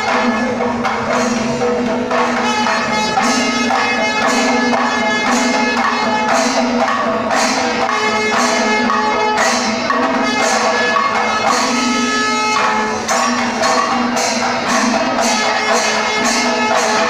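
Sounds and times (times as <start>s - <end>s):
cymbals: 0.0s - 17.0s
drums in steady rhythm: 0.0s - 17.0s
sustained horn notes: 2.1s - 13.9s.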